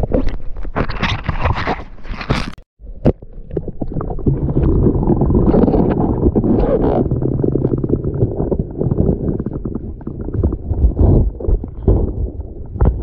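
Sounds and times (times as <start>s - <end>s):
underwater river rumble: 2.8s - 13.0s.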